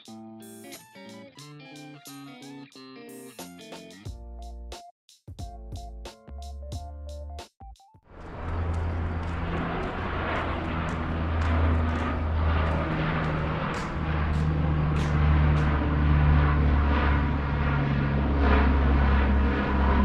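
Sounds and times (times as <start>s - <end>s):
aircraft drone overhead: 8.1s - 20.0s.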